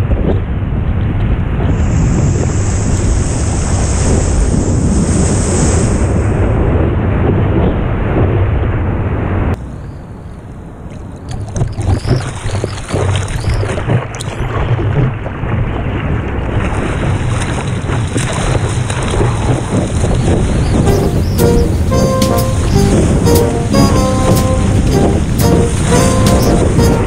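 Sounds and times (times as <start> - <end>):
hands paddling water: 11.3 - 15.2, 16.6 - 27.0
whitewater rushing: 18.4 - 27.0.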